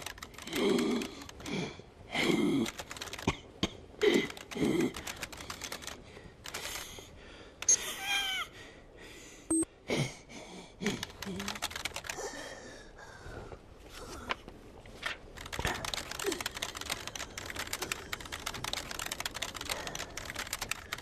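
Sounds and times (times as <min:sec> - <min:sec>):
keyboard keys clicking: 0:02.6 - 0:03.3, 0:11.0 - 0:12.2, 0:15.4 - 0:21.0.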